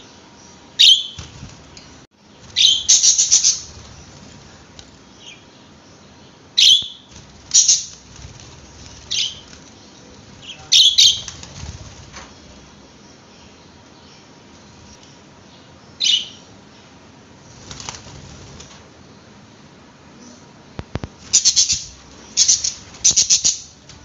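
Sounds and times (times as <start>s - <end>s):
wing flutter: 1.0s - 5.4s, 7.0s - 12.8s, 17.5s - 18.9s, 20.8s - 24.0s
budgerigars chirping: 2.6s - 3.7s, 6.6s - 8.0s, 21.3s - 23.7s.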